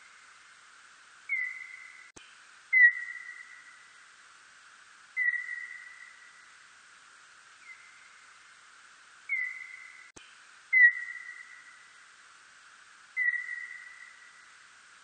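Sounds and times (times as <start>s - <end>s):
steady hiss: 0.0s - 15.0s
bat chirps: 1.3s - 2.1s, 5.2s - 6.2s, 9.3s - 10.1s, 13.2s - 14.2s.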